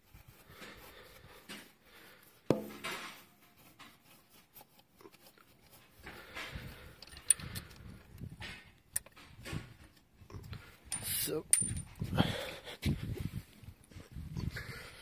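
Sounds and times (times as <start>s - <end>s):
handling noise: 10.9s - 12.0s.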